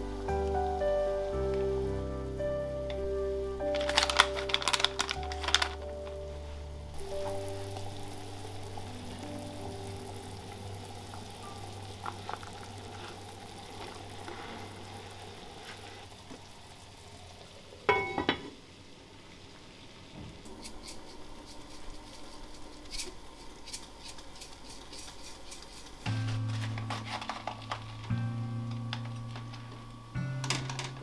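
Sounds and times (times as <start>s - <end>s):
sauce simmering in a pot: 6.9s - 30.6s
ladle stirring: 10.8s - 16.0s, 20.5s - 28.1s.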